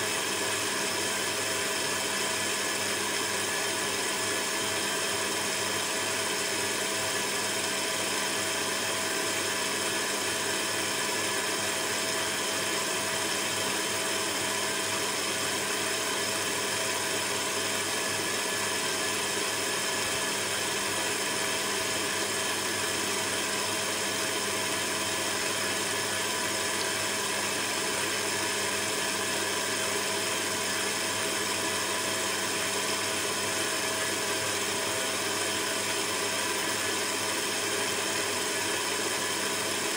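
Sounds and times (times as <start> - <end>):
stand mixer motor humming: 0.0 - 39.9.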